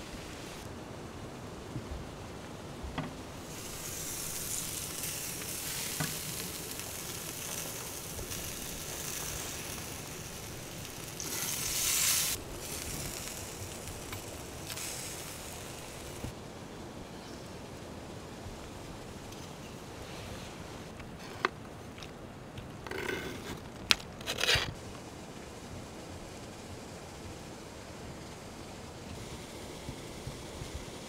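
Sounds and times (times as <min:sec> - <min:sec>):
meat sizzling on a grill: 0:03.4 - 0:16.3.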